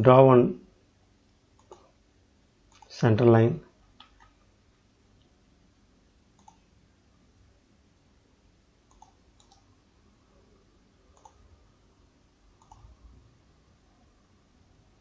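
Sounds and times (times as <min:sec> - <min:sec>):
low room hum: 0:00.0 - 0:15.0
computer mouse clicks: 0:01.6 - 0:01.9, 0:02.7 - 0:02.9, 0:03.9 - 0:04.4, 0:06.4 - 0:06.6, 0:08.9 - 0:09.7, 0:11.1 - 0:11.4, 0:12.6 - 0:13.0.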